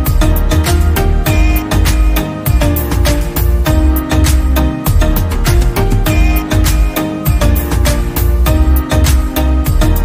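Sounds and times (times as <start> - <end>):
music with steady beat: 0.0 - 10.0.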